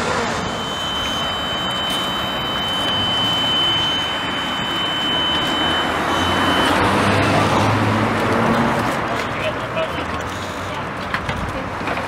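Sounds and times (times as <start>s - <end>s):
outdoor noise: 0.0s - 12.0s
high-pitched buzzer tone: 0.1s - 7.7s.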